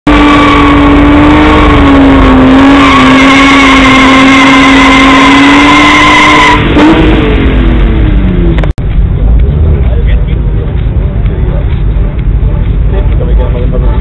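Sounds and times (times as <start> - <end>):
tyres skidding squeal: 0.1 - 7.4
car engine revving high: 0.1 - 11.1.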